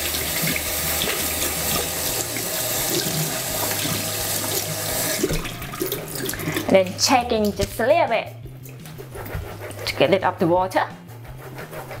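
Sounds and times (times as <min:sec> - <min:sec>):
water splashing into steel sink: 0:00.0 - 0:07.8
tap water running into sieve: 0:00.0 - 0:09.0.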